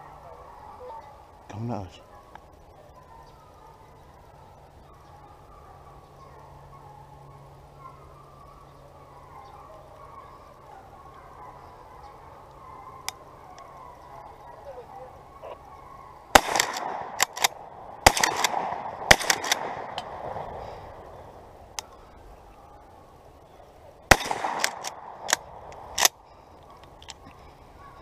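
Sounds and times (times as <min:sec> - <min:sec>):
shotgun firing: 0:16.3 - 0:20.5, 0:24.1 - 0:26.1.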